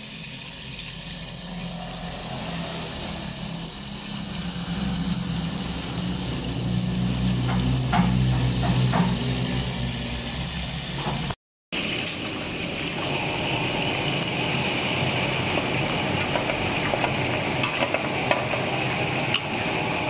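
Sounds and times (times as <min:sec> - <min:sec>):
spice paste sizzling in oil: 0:00.0 - 0:11.1.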